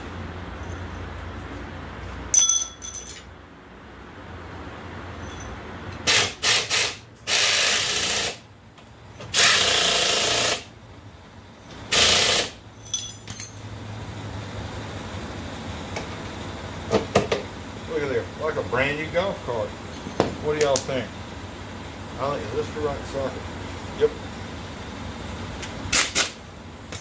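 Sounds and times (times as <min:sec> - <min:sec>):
metal tools clinking on bolt: 0:02.3 - 0:03.3, 0:12.8 - 0:13.7
pneumatic impact wrench hammering: 0:06.0 - 0:08.4, 0:09.2 - 0:10.7, 0:11.9 - 0:13.0, 0:25.9 - 0:27.0.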